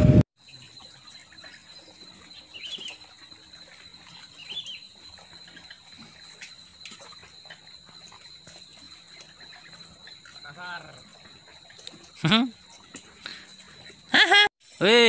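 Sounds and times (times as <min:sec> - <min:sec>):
bird chirps: 0:00.4 - 0:03.1, 0:03.7 - 0:05.8.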